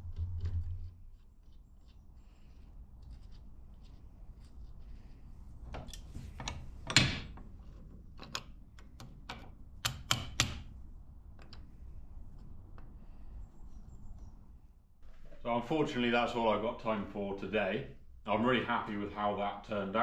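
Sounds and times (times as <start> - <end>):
small metal clicks and knocks: 5.7 - 10.7.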